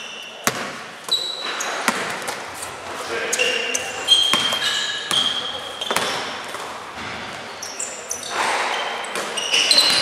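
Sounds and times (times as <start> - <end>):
sneakers squeaking on court: 0.0 - 10.0
basketball bouncing on gym floor: 0.4 - 2.4, 4.1 - 7.6.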